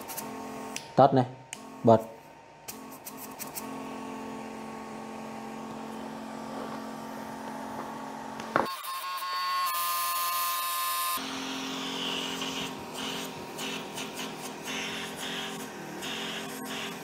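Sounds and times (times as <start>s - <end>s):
air blower motor hum: 3.5s - 8.6s, 11.2s - 17.0s.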